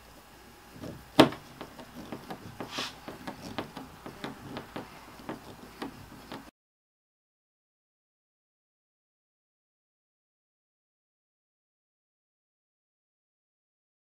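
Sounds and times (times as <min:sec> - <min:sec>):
screwdriver turning a screw: 0:00.8 - 0:06.5
brief scrape: 0:02.6 - 0:03.1.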